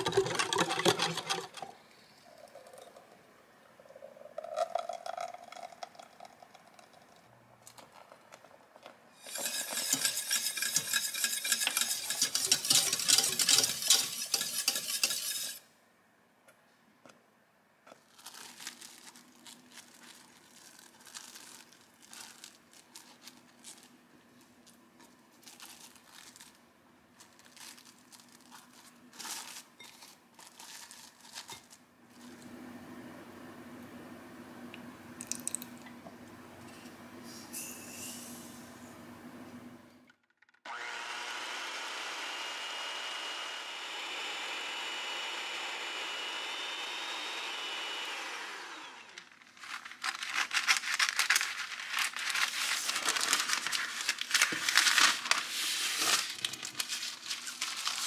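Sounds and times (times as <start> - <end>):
scraping in a pot: 0.0 - 1.8, 9.2 - 15.7, 36.6 - 38.7, 49.8 - 58.0
whisk clicking against saucepan: 9.2 - 15.6.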